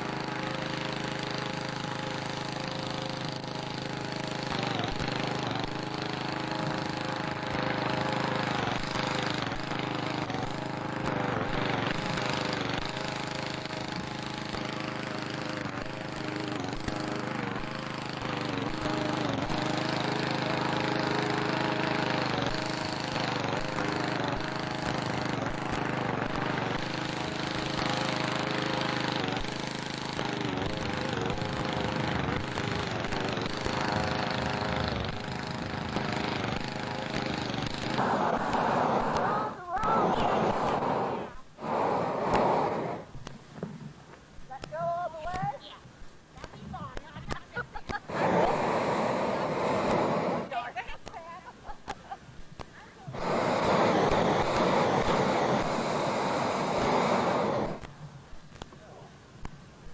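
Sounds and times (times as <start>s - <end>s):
small engine running: 0.0s - 43.9s, 46.5s - 51.9s, 52.6s - 58.6s
heavy hiss: 18.6s - 59.9s.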